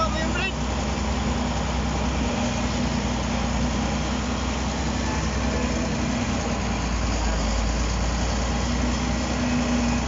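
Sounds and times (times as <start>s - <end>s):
diesel engine running: 0.0s - 10.0s.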